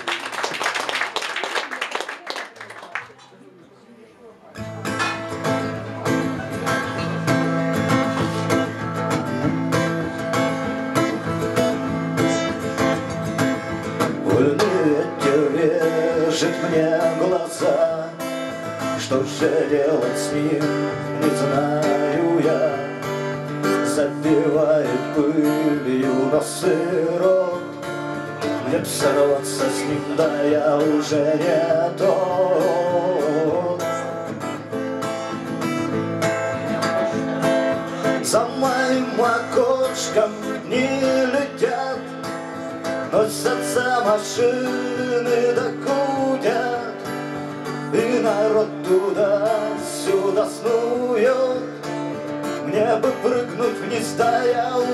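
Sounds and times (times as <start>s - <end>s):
acoustic guitar strumming: 4.6s - 54.9s
wordless vocal melody: 14.0s - 34.6s, 36.0s - 54.9s.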